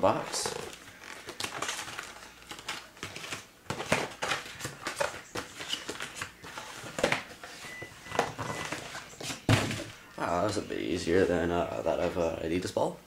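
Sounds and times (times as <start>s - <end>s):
cardboard packaging rustling: 0.0s - 10.4s.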